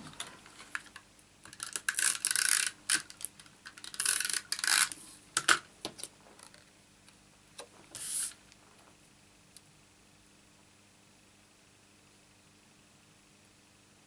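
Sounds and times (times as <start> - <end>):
tape runner rubbing on cardstock: 7.9 - 8.4.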